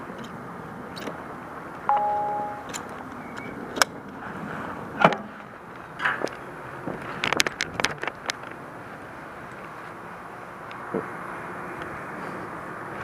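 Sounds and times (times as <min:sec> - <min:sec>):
short metallic ding: 0:01.9 - 0:02.7.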